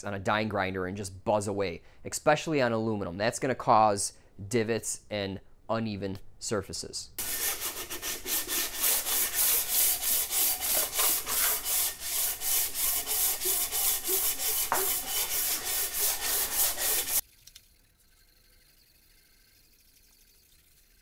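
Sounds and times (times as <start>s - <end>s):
sandpaper sanding metal: 7.2s - 17.2s.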